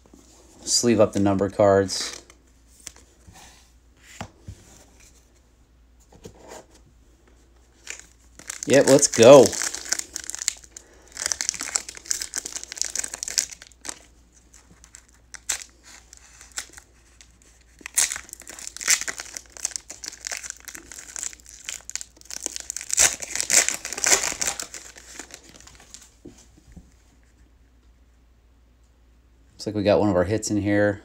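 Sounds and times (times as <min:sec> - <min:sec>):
foil wrapper crinkling and tearing: 0:07.8 - 0:26.0.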